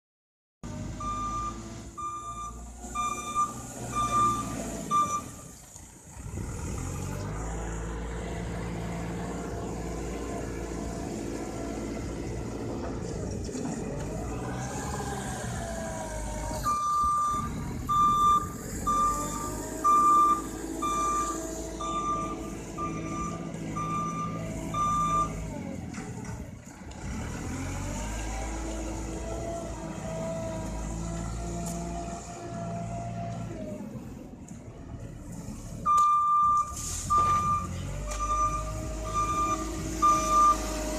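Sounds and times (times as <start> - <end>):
diesel engine running under load: 0.6 - 40.9
reversing alarm beeping: 1.0 - 5.5, 16.6 - 25.4, 35.9 - 40.7.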